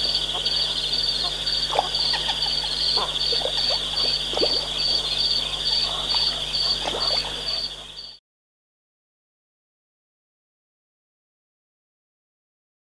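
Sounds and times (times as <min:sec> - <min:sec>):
frog calls: 0:00.0 - 0:08.2
high insect trill: 0:00.0 - 0:08.2.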